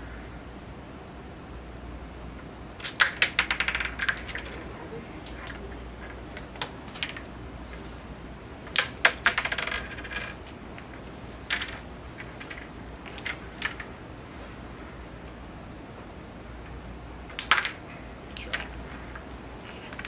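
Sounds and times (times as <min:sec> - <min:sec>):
wooden discs clacking on board: 0:02.8 - 0:08.0, 0:08.6 - 0:14.0, 0:17.3 - 0:20.0.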